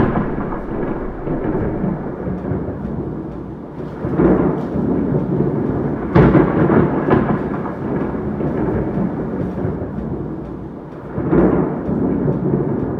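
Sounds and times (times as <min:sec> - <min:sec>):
thunder crack: 0:00.0 - 0:12.9
thunder rumbling: 0:00.0 - 0:12.9.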